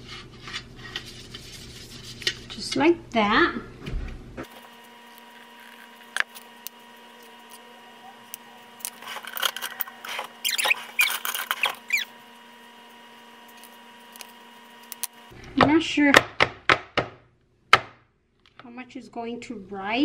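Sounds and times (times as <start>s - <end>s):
faint electrical hum: 0.0s - 20.0s
kitchenware squeaks and scrapes on stone: 8.9s - 12.1s.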